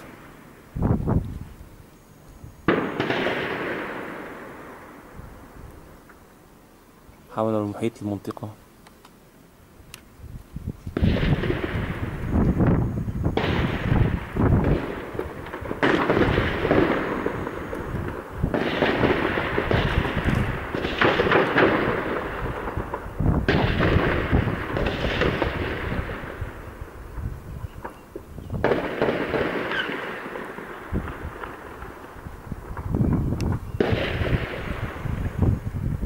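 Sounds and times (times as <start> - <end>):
rapid gunfire echoing: 18.5 - 22.9, 28.6 - 31.9
loud sudden gunshot reports: 28.6 - 30.4.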